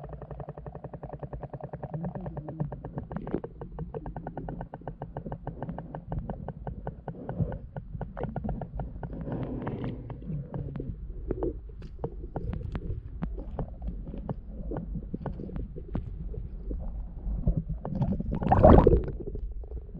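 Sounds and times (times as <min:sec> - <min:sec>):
rapid sharp clicks underwater: 0:00.0 - 0:19.9
water rumbling against housing: 0:18.2 - 0:19.3.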